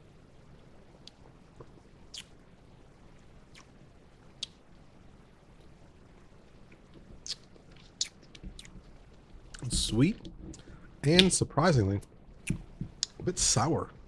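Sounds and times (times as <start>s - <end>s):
wet mouth clicks and lip smacks: 1.0s - 2.3s, 3.5s - 3.7s, 7.2s - 8.8s.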